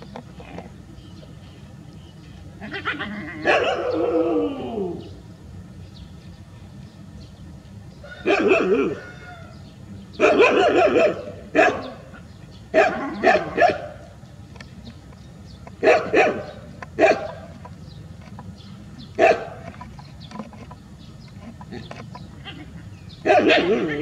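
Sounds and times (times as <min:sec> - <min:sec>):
dogs barking and yelping: 0:02.7 - 0:05.2, 0:08.1 - 0:09.4, 0:10.1 - 0:14.2, 0:15.6 - 0:17.8, 0:19.0 - 0:20.1, 0:21.6 - 0:24.0.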